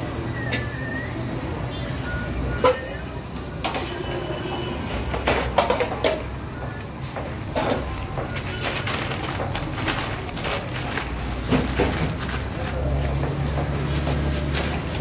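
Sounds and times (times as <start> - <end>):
trays clattering on counter: 4.8 - 15.0
plastic bag rustling: 7.7 - 15.0.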